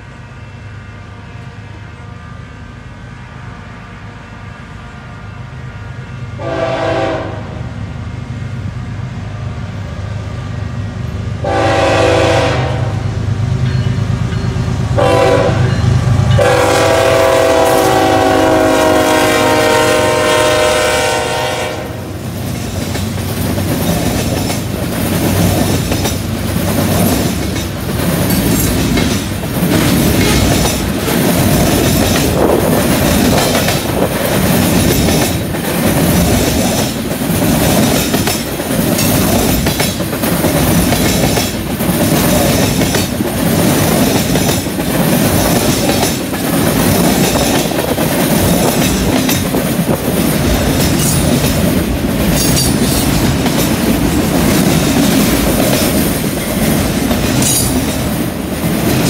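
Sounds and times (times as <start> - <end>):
train horn: 3.3 - 7.8, 11.4 - 13.2, 15.0 - 22.2
train wheels clanking over rail joints: 22.3 - 59.0.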